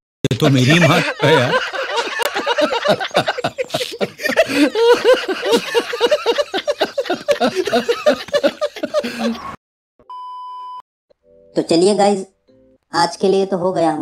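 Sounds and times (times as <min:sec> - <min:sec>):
men laughing: 0:00.3 - 0:09.6.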